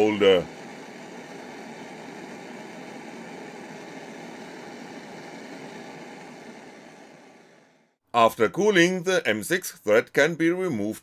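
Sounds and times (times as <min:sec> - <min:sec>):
blowtorch flame hissing: 0:00.0 - 0:08.0.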